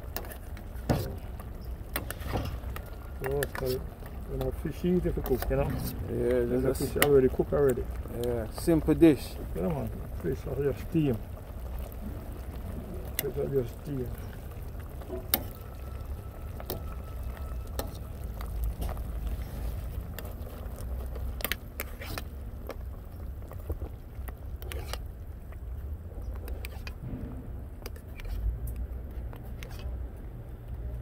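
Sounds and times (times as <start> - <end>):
steady low rumble: 1.1 - 21.4, 27.0 - 29.2
metal spoon scraping frying pan: 24.6 - 25.0.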